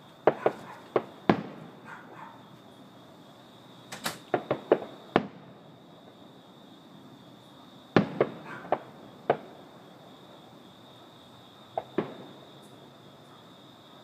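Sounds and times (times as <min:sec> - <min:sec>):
fireworks bangs: 0:00.2 - 0:01.8, 0:03.9 - 0:05.5, 0:07.9 - 0:09.6, 0:11.8 - 0:12.4.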